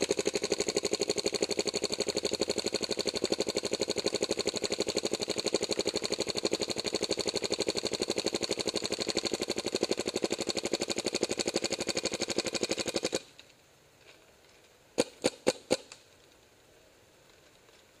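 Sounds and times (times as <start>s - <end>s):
paintball marker rapid firing: 0.0s - 13.3s, 15.0s - 16.1s
paintball marker single shots: 15.0s - 16.1s.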